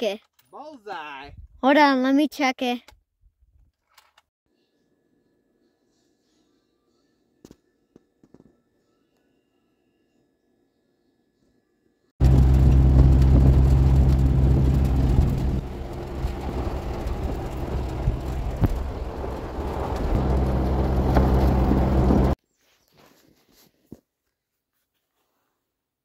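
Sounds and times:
vehicle engine running: 0:12.2 - 0:22.4.

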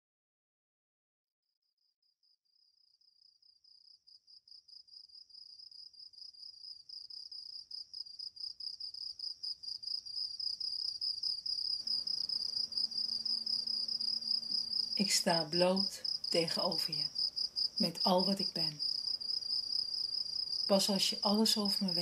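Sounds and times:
crickets chirping: 0:02.5 - 0:22.0.

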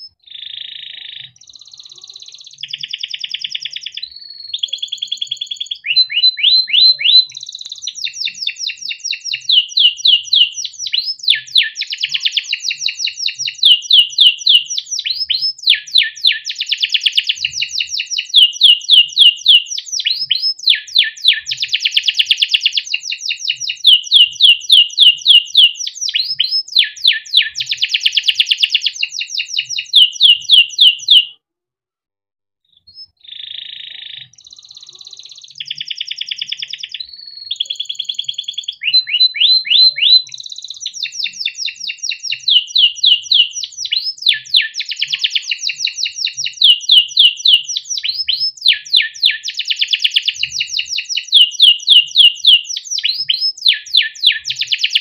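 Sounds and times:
canary singing trills: 0:00.0 - 0:31.4, 0:32.8 - 0:55.0.

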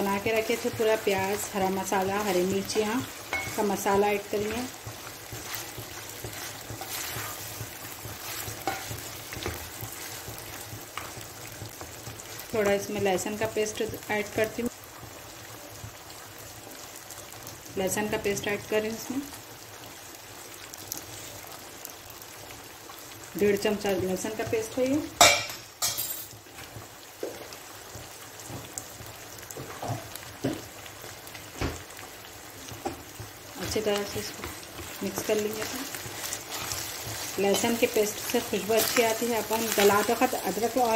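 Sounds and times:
meat sizzling in oil: 0:00.0 - 0:40.9
spatula scraping and tapping pan: 0:03.1 - 0:12.7.

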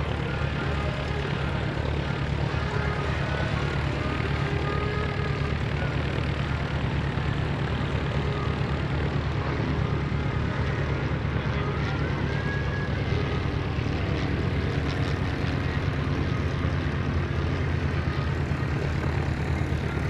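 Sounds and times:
light plane engine droning: 0:00.0 - 0:20.0.

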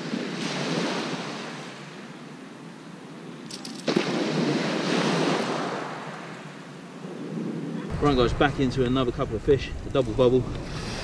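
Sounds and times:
waves breaking on shingle: 0:08.0 - 0:11.0.

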